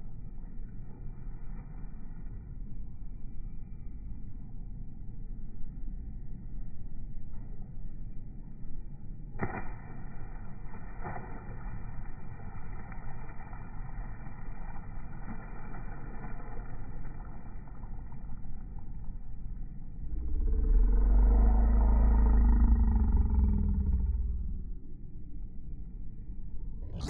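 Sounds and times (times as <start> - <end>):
loud low rumble: 17.2 - 27.0.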